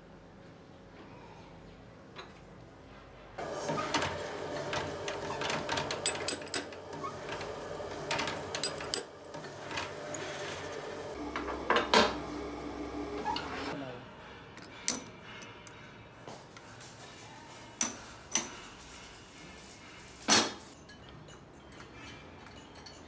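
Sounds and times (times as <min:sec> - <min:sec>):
metal parts knocking and clinking: 0:05.6 - 0:06.8, 0:08.1 - 0:09.2.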